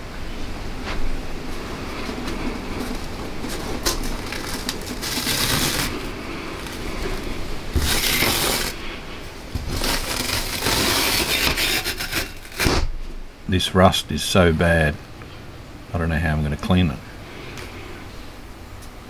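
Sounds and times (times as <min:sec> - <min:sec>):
backing sheet ripping and scraping: 0:01.8 - 0:13.2.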